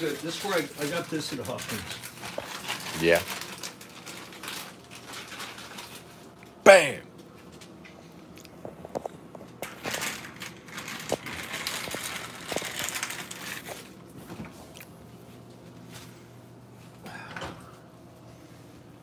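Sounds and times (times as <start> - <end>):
plastic bag crinkling: 0.0 - 6.4, 9.4 - 14.1.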